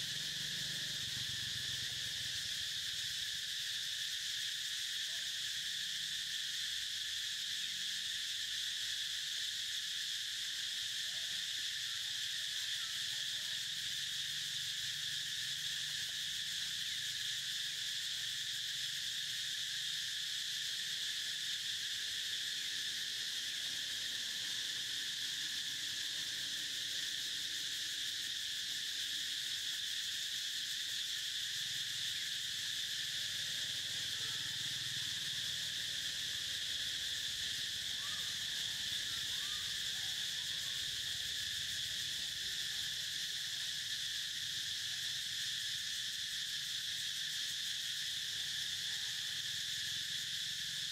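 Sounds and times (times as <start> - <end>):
insects chirping drone: 0.0 - 50.9.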